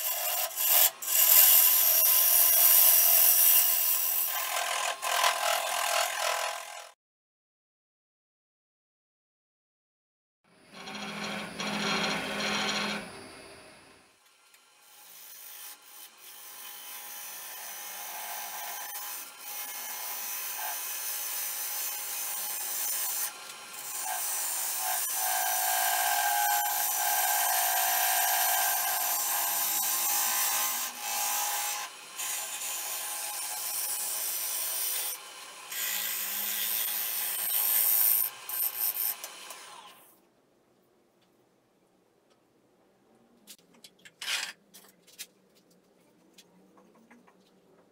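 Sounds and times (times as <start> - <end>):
lathe gouge scraping wood: 10.7 - 13.1.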